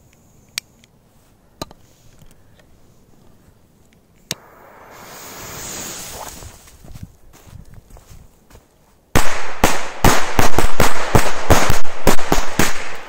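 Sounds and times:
torch flame hissing: 0:04.4 - 0:06.8.

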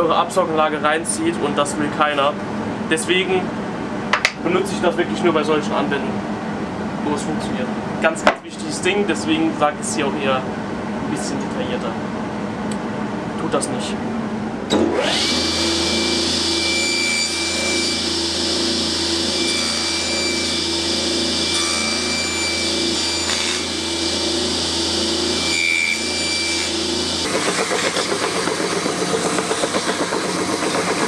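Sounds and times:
table saw whining: 0:14.7 - 0:31.0
belt sander grinding wood: 0:17.2 - 0:31.0.

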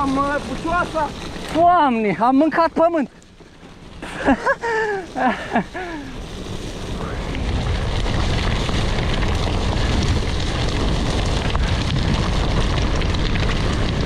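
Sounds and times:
bike tyres rolling on muddy trail: 0:00.0 - 0:14.0
wind rushing over microphone: 0:03.8 - 0:14.0.

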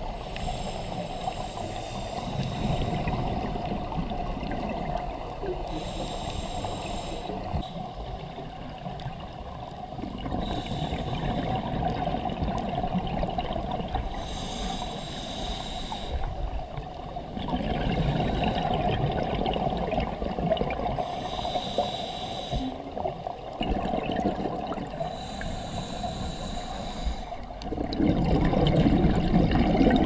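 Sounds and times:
hissing regulator inhalations: 0:00.1 - 0:03.3, 0:05.6 - 0:08.2, 0:10.4 - 0:11.7, 0:13.9 - 0:16.4, 0:21.0 - 0:23.0, 0:25.0 - 0:27.5
bubbling exhalations: 0:23.6 - 0:25.0, 0:27.7 - 0:30.0.

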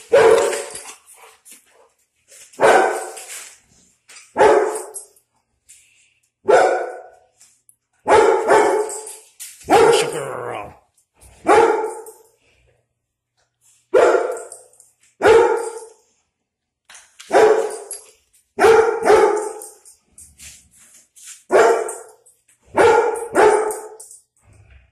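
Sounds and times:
dog barking: 0:00.1 - 0:00.7, 0:02.6 - 0:03.2, 0:04.4 - 0:04.9, 0:06.4 - 0:07.2, 0:08.0 - 0:09.0, 0:09.6 - 0:10.4, 0:11.4 - 0:12.0, 0:13.9 - 0:14.4, 0:15.2 - 0:15.9, 0:17.3 - 0:17.9, 0:18.6 - 0:19.6, 0:21.5 - 0:22.1, 0:22.7 - 0:24.0.

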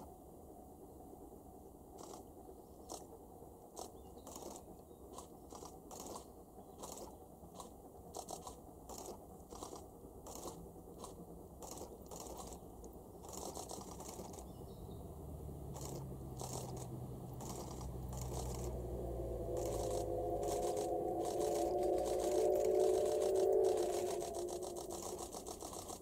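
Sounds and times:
steam locomotive exhaust chuffing: 0:00.4 - 0:26.0
low rumble: 0:13.5 - 0:26.0.

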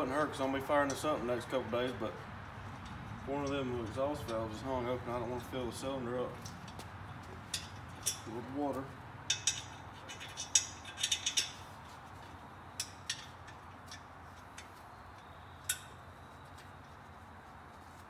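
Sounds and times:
light metal clinks and clicks: 0:06.3 - 0:11.7, 0:12.7 - 0:16.1.

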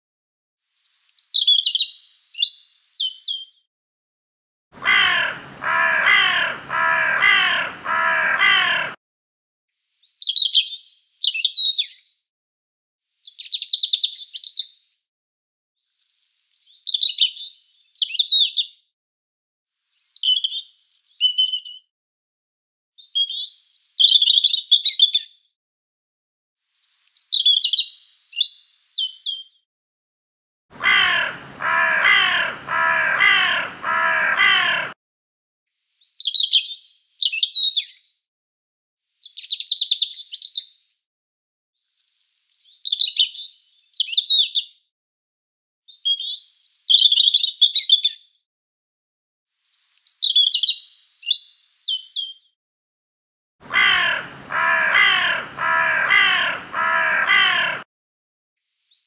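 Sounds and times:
harsh repeated bird calls: 0:04.8 - 0:09.0, 0:30.8 - 0:35.0, 0:53.6 - 0:57.9
robin singing: 0:30.8 - 0:34.9, 0:53.6 - 0:57.8.

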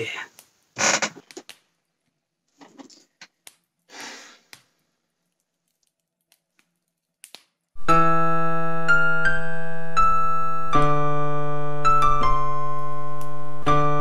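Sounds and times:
person exhaling: 0:03.9 - 0:04.5
electric piano chords: 0:07.8 - 0:14.0.

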